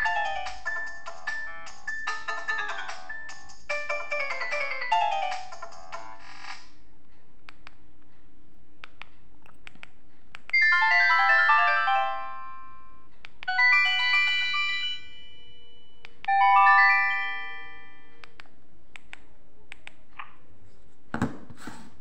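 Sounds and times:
handling bump and rub: 21.1s - 21.9s.

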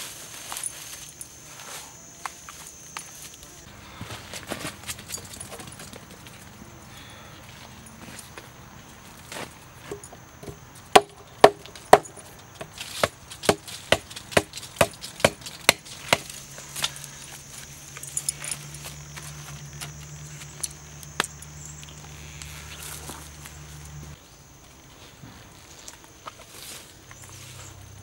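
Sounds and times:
faint high whine: 0.0s - 8.4s
blade chopping onto wood: 9.9s - 16.4s.

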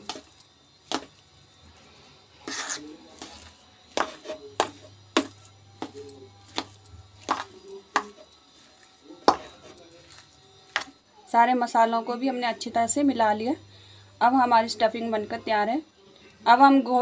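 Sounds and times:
food mixed by hand: 0.0s - 13.4s.

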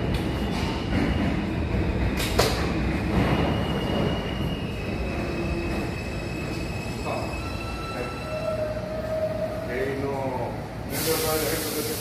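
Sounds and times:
low train rumble: 0.0s - 12.0s
train wheels squealing: 3.0s - 10.0s.

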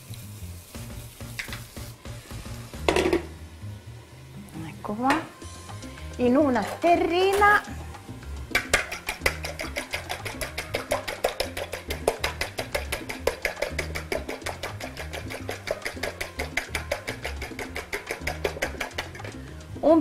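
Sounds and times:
background music with bass line: 0.0s - 4.5s, 5.3s - 20.0s
utensil clicking against glass bowl: 8.5s - 19.3s.

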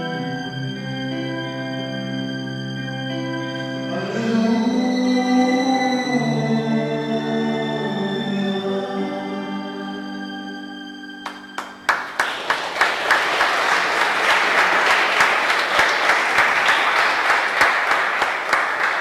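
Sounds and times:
held chord of backing music: 0.0s - 19.0s
audience applauding: 11.2s - 19.0s.

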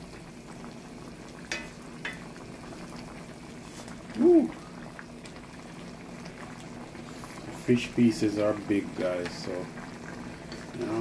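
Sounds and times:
gravy simmering and bubbling in a pot: 0.0s - 11.0s
person humming: 4.2s - 4.6s.

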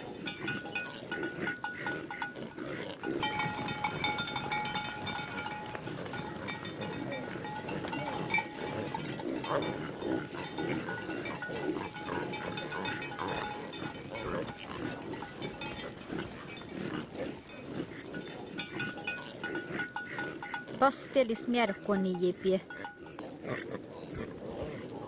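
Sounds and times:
bell-like tones ringing: 0.0s - 23.2s
reindeer grunting: 5.1s - 21.1s.

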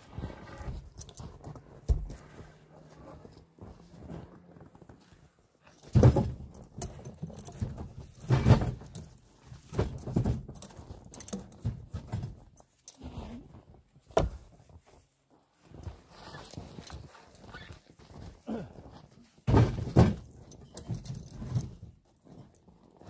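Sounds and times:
firewood logs knocking and thudding: 5.8s - 9.0s, 19.4s - 21.8s.

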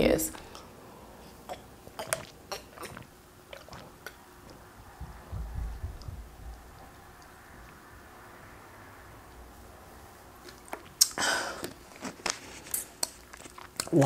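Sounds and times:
person gulping water: 1.4s - 7.3s.

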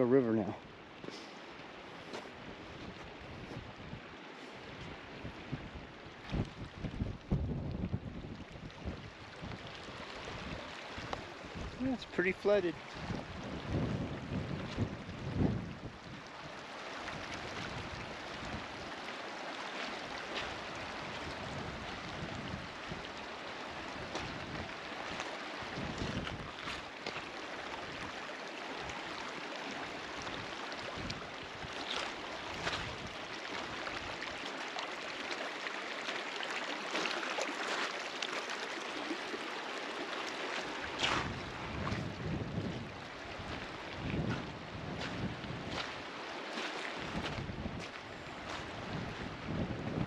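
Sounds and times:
floodwater rushing over gravel: 0.1s - 50.0s
wind buffeting microphone: 2.4s - 12.0s, 12.8s - 16.3s, 20.4s - 23.1s, 24.0s - 26.8s, 40.9s - 46.1s, 47.0s - 50.0s.

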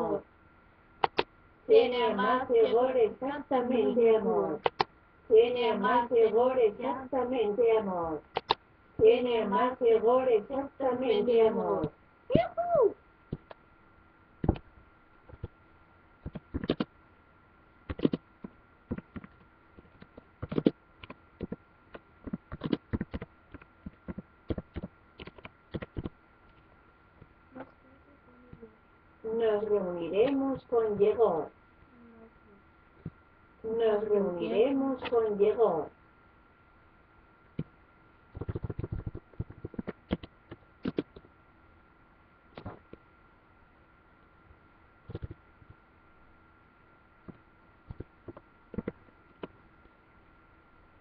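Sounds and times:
faint high whine: 0.0s - 51.0s
typing on laptop keyboard: 16.2s - 16.9s, 17.9s - 18.2s, 18.9s - 21.6s, 22.3s - 26.2s, 38.3s - 41.2s, 45.1s - 45.4s.

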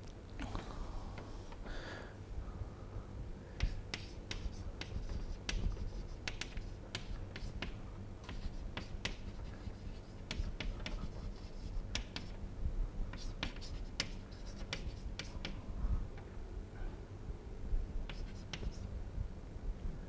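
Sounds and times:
low steady hum: 0.0s - 20.0s
chalk tapping and scratching: 3.6s - 12.4s, 13.1s - 15.6s, 18.0s - 18.9s.

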